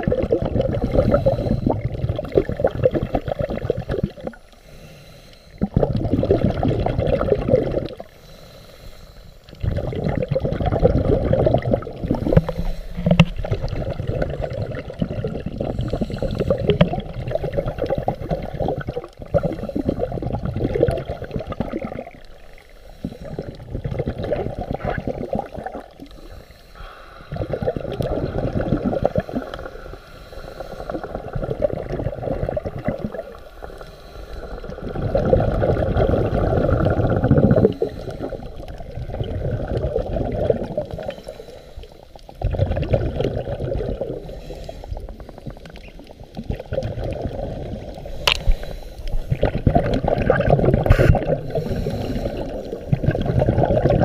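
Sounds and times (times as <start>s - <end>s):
bubbles gurgling underwater: 0.0s - 4.5s, 5.6s - 8.1s, 9.5s - 26.2s, 27.2s - 30.0s, 30.8s - 33.8s, 34.4s - 41.3s, 42.2s - 54.0s
diver breathing through regulator: 0.7s - 1.9s, 4.4s - 5.7s, 8.0s - 9.6s, 12.0s - 14.7s, 15.6s - 20.4s, 22.3s - 23.8s, 26.0s - 31.6s, 32.5s - 38.8s, 40.8s - 42.3s, 44.1s - 45.8s, 47.7s - 49.7s, 50.8s - 53.8s.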